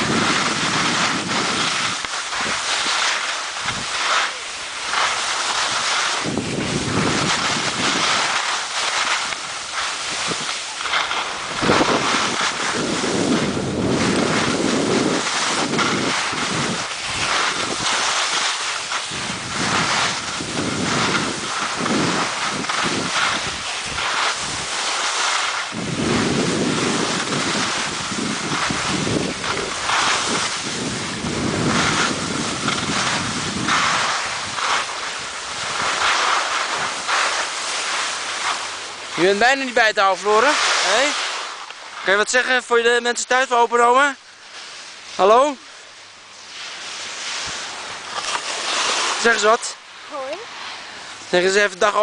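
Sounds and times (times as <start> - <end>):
wind on microphone: 0.0 - 39.5
skis sliding on snow: 0.0 - 52.0.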